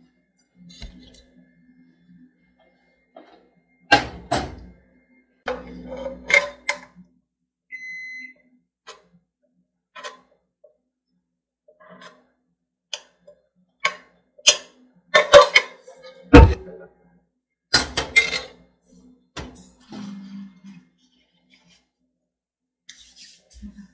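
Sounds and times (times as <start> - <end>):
electronic appliance beep: 7.7 - 8.4.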